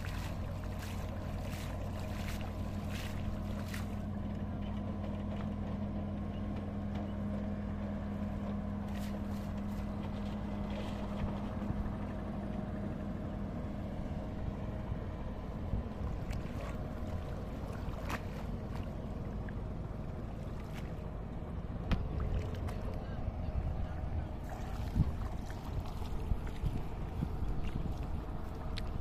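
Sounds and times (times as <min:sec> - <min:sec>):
water splashing from net: 0:00.0 - 0:04.1, 0:16.2 - 0:18.9
low engine hum: 0:00.0 - 0:29.0.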